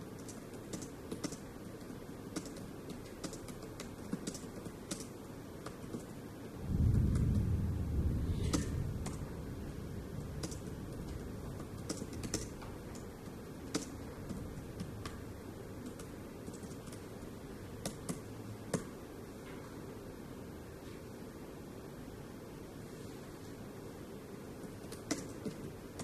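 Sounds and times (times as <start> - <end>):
low background noise: 0.0 - 26.0
keyboard keystroke clicks: 0.2 - 6.1, 24.8 - 26.0.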